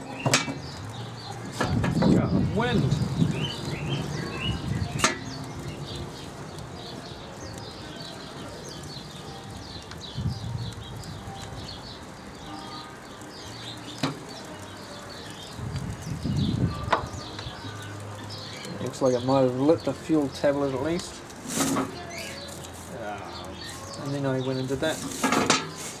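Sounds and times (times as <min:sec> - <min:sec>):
small birds chirping: 0:00.0 - 0:26.0
wind buffeting microphone: 0:00.6 - 0:07.9, 0:08.7 - 0:12.2, 0:15.3 - 0:18.9.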